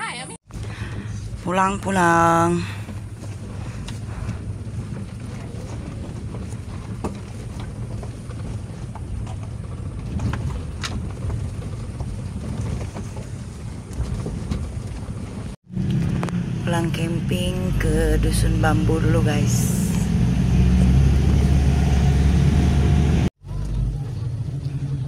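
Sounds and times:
vehicle engine and tyre rumble: 0.0s - 25.0s
knocks and rattles over ruts: 0.4s - 25.0s.

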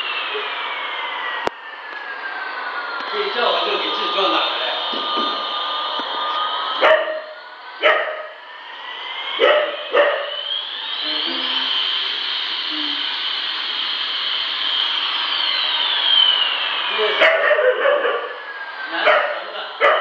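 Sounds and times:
toy airplane electronic jet whine: 0.0s - 20.0s
puppy barking: 6.8s - 7.2s, 7.8s - 8.3s, 9.4s - 10.3s, 17.2s - 18.3s, 19.1s - 20.0s.

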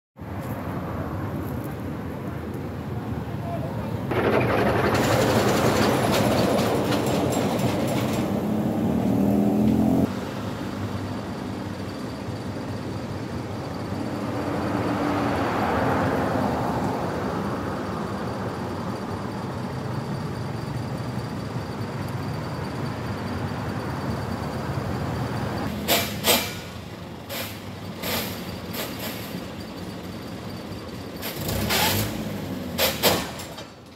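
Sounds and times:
motor vehicle running: 3.9s - 33.5s
vehicle passing: 7.9s - 11.6s, 14.0s - 18.2s.

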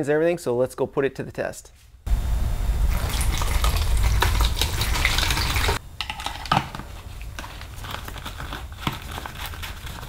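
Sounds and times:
liquid pouring through a funnel: 2.8s - 6.5s.

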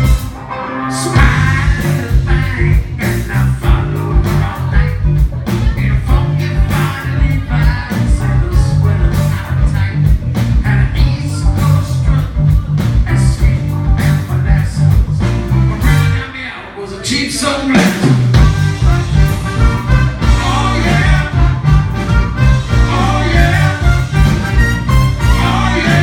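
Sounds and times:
blues-rock band playing: 0.0s - 16.4s, 17.6s - 26.0s
person singing: 0.8s - 14.9s, 20.2s - 24.4s, 25.2s - 26.0s
saxophone: 15.6s - 16.6s, 18.4s - 26.0s.

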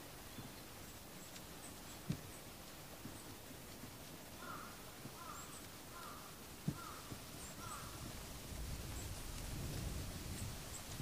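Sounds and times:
small birds chirping: 0.0s - 8.1s, 10.3s - 11.0s
crow cawing: 4.4s - 8.0s.

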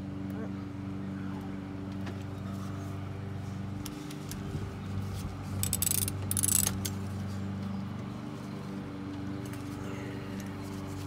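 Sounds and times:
hand ratchet clicking: 5.6s - 6.9s.

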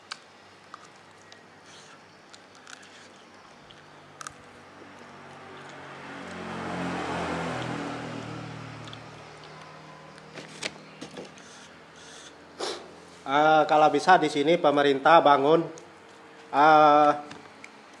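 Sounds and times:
vehicle passing by: 4.0s - 14.7s.

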